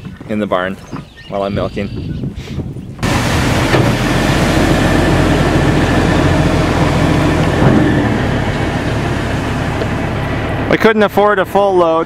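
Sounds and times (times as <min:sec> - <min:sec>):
sand pouring out: 0:03.0 - 0:07.6
diesel truck engine running: 0:03.0 - 0:12.0.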